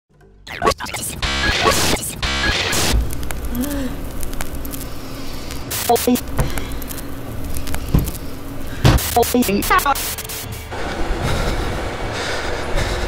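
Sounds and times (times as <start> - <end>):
crackling static hiss: 0.8 - 11.2
scattered clicks: 0.9 - 8.2
low noisy ambience: 1.0 - 13.0.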